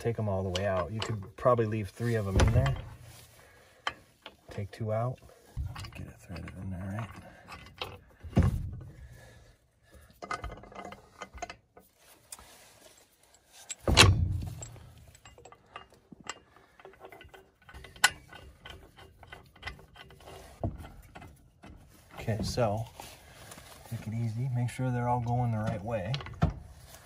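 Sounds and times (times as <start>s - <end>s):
heavy metal clunks: 2.2s - 3.2s, 5.6s - 9.2s, 13.8s - 15.8s
small metal clicks and clinks: 14.4s - 20.2s.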